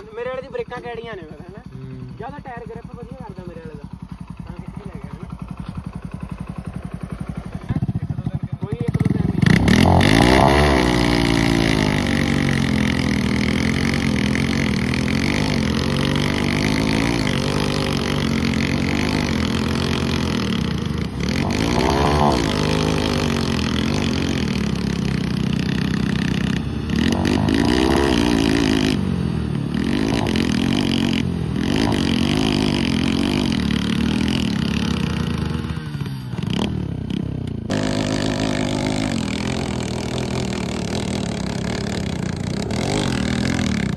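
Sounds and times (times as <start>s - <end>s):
motorcycle engines revving hard: 0.0s - 43.9s
wheels spinning in loose dirt: 0.0s - 43.9s.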